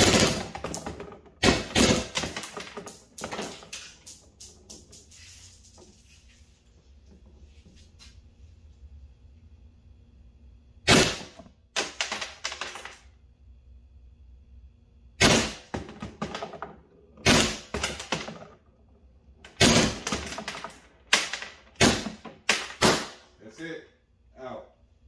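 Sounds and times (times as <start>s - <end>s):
paintballs hitting paper target: 0.0s - 6.0s, 10.9s - 13.0s, 15.2s - 18.5s, 19.4s - 23.2s
paintball marker firing bursts: 10.9s - 11.4s, 21.1s - 23.2s.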